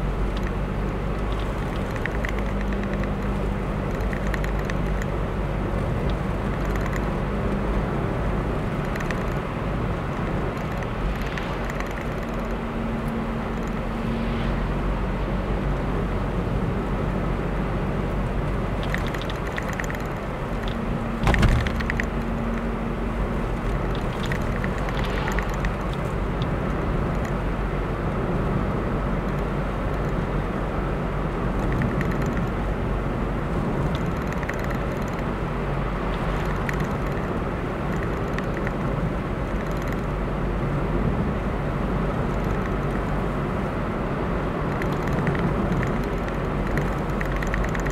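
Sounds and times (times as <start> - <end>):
car engine and tyre rumble: 0.0 - 47.9
sharp thump: 21.2 - 22.0.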